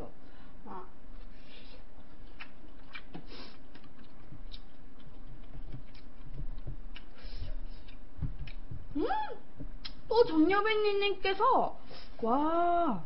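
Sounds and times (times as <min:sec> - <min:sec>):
steady low hum: 0:00.0 - 0:13.0
chewing: 0:01.9 - 0:08.7.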